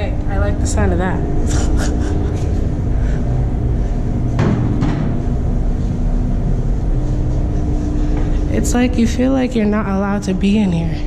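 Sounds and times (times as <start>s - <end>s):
low hum and rumble: 0.0s - 11.0s
sharp knock: 4.4s - 5.2s.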